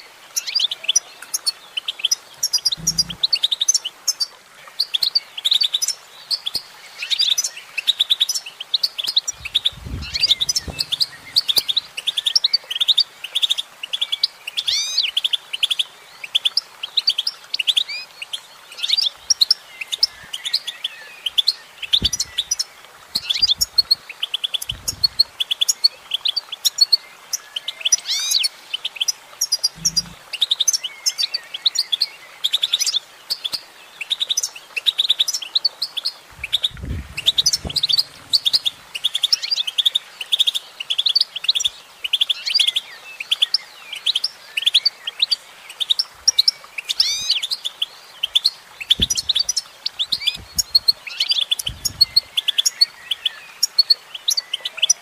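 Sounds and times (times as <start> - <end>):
goldfinch twittering song: 0.3 - 55.0
faint low thumps: 2.7 - 3.3, 9.3 - 11.9, 22.0 - 22.5, 24.7 - 25.3, 29.8 - 30.2, 36.3 - 39.0, 49.0 - 49.5, 51.6 - 52.3.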